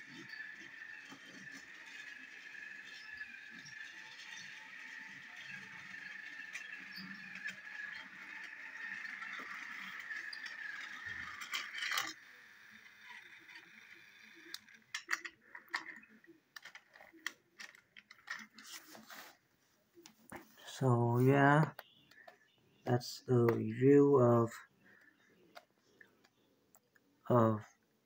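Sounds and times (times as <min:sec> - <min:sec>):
toy train motor whirring: 0:00.0 - 0:19.3
plastic rattling: 0:14.5 - 0:19.1.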